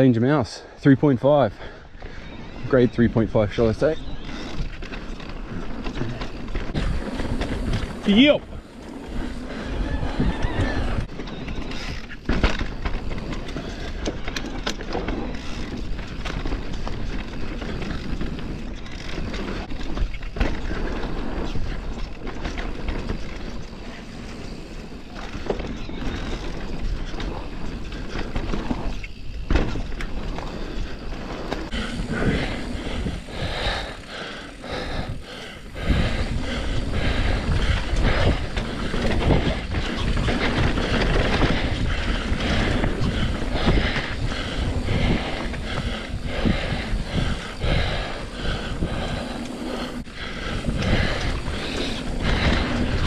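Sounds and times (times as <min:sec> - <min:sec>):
bike rattling: 0:00.0 - 0:53.0
bike tyres on dirt: 0:00.0 - 0:53.0
wind on microphone: 0:02.6 - 0:12.0, 0:25.8 - 0:53.0.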